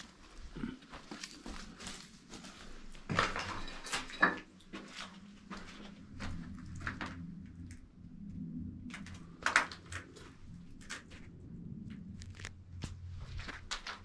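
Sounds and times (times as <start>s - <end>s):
footsteps crunching on rubble: 0.0s - 7.1s, 12.1s - 14.0s.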